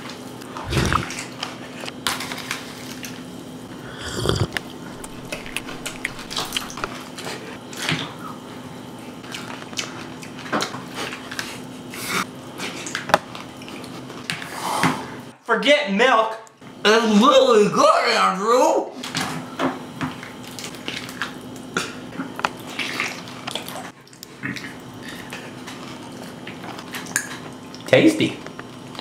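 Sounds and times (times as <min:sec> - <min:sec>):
steady low hum: 0:00.4 - 0:08.3
slurping and chewing: 0:00.5 - 0:02.0, 0:02.8 - 0:07.5
liquid dripping: 0:04.5 - 0:06.9.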